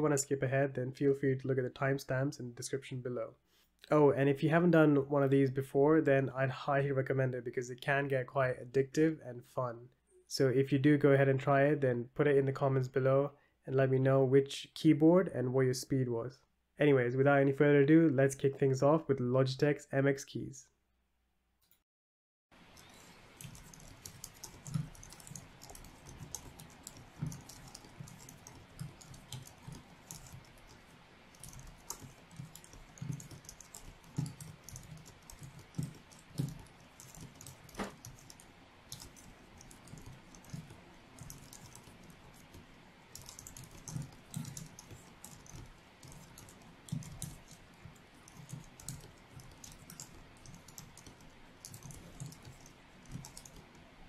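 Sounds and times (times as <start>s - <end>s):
keyboard typing: 22.6s - 54.0s.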